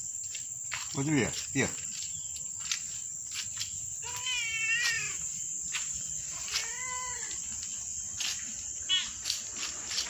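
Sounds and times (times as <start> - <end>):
cat meowing: 4.0 - 5.2, 6.5 - 7.4.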